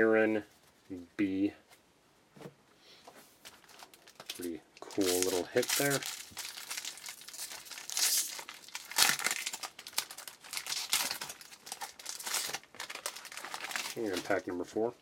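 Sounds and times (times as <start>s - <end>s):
foil wrapper crinkling and tearing: 3.5s - 14.7s.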